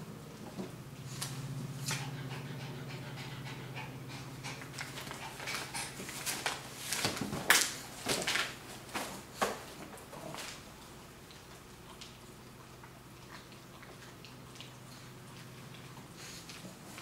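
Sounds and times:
dog panting rapidly: 1.8 - 6.5
newspaper crackling and rustling: 6.0 - 9.4.

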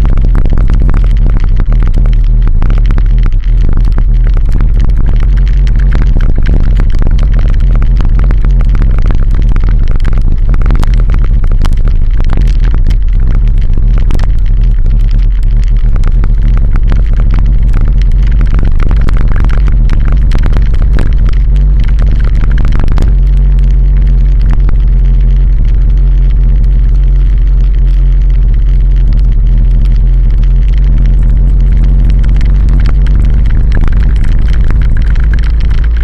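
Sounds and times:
road noise rumble: 0.0 - 36.0
wind buffeting: 28.6 - 36.0.

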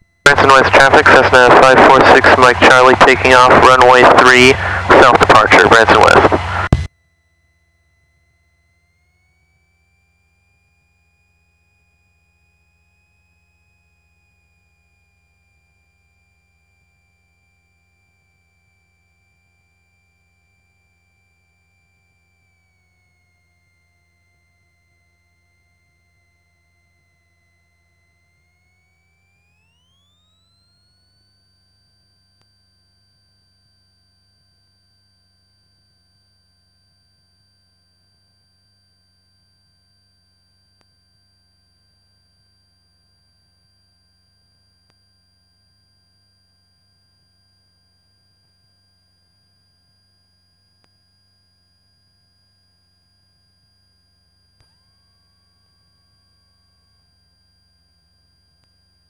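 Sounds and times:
low hum: 0.0 - 13.1
high electrical whine: 0.0 - 59.0.

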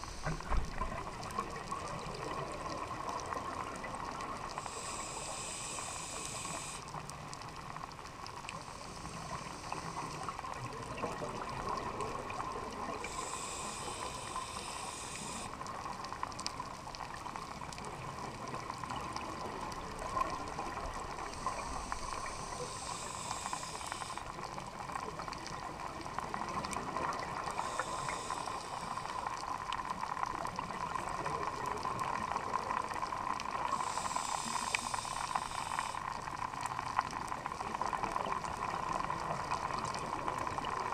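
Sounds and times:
muffled regulator hiss: 0.0 - 1.0, 4.5 - 7.1, 8.5 - 10.6, 12.9 - 15.8, 20.2 - 24.6, 26.8 - 29.4, 33.6 - 36.2.

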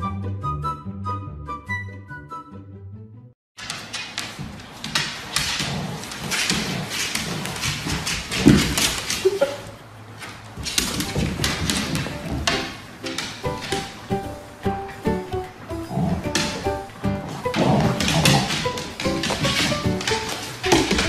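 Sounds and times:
dog claws clicking on wood: 3.6 - 14.2, 14.9 - 21.0.

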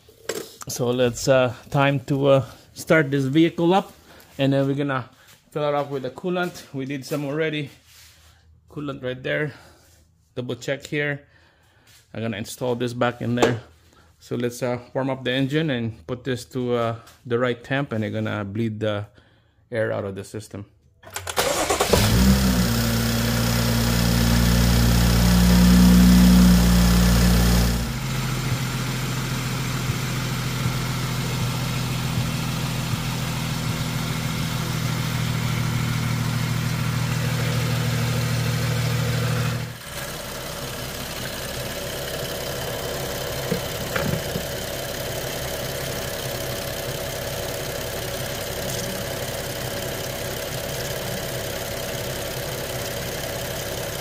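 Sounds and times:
car engine idling: 21.4 - 54.0.

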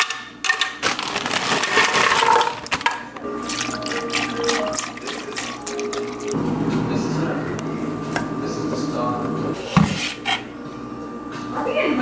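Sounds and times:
background music: 3.2 - 6.4.

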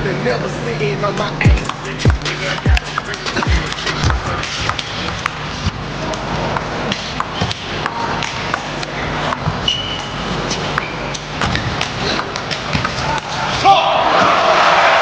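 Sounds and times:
crowd hum: 1.3 - 9.6.

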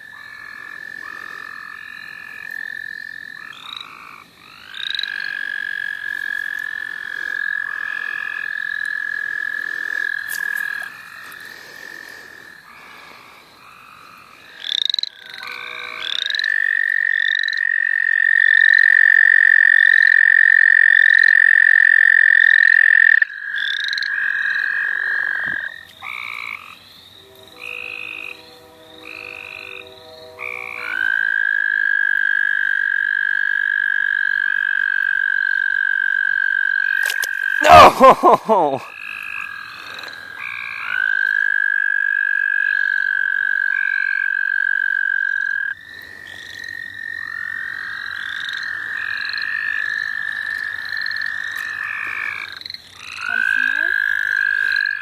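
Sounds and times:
toads trilling: 0.0 - 28.4, 29.0 - 55.0
frogs calling: 0.0 - 55.0.

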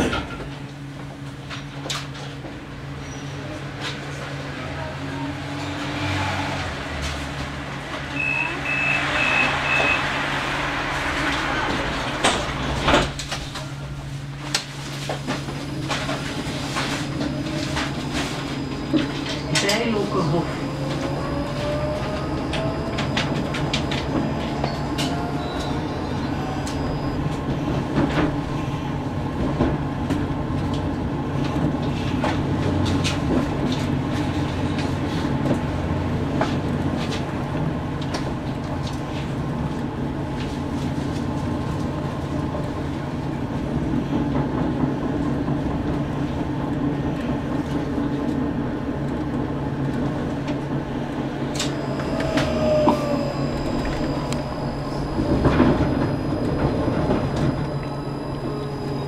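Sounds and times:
tram drive humming: 0.0 - 59.0
wheels rumbling on track: 0.0 - 59.0.

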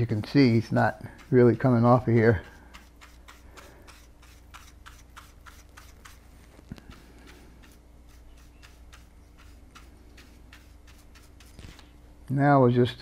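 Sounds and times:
brush flicking strokes: 0.0 - 12.0.

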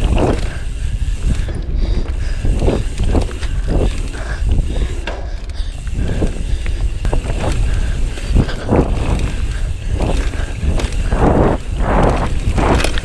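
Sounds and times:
bike clicking and rattling: 0.0 - 13.0
wind buffeting microphone: 0.0 - 13.0
tyres rumbling over dirt: 5.8 - 13.0.

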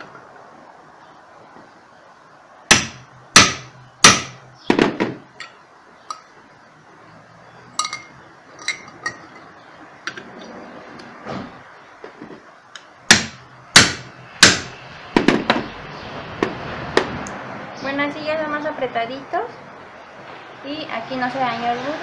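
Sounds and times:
hammer striking metal punch: 2.7 - 6.2, 13.1 - 15.4
light metal clinks: 7.8 - 9.5.

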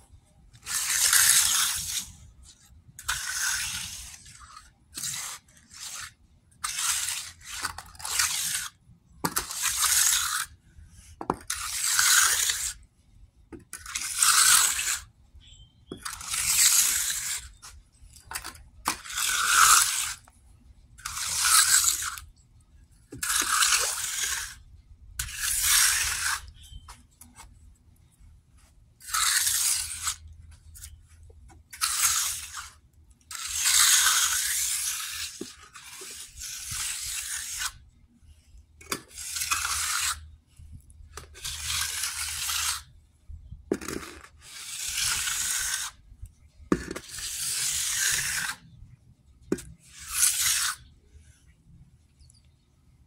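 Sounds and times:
trowel scraping wet concrete: 0.6 - 12.9, 13.6 - 20.3, 21.0 - 22.4, 23.1 - 27.6, 29.0 - 37.9, 38.8 - 43.0, 43.7 - 46.0, 46.7 - 48.7, 49.5 - 51.0.

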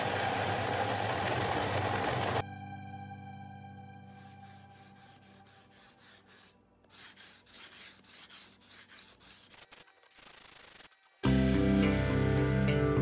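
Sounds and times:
sandpaper rubbing on wood: 4.1 - 10.9.

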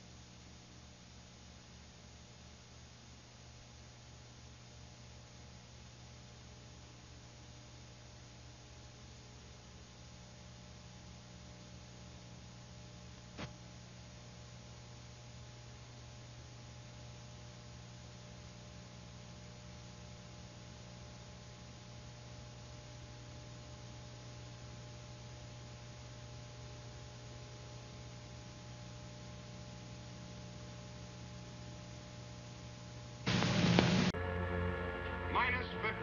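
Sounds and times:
low electrical hum: 0.0 - 36.0
faint hiss: 33.2 - 34.2.

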